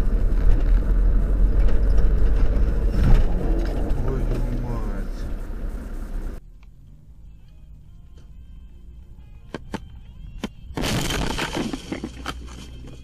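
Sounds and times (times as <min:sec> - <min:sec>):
vehicle crash with breaking and rattling: 0:01.4 - 0:06.1, 0:10.8 - 0:12.2.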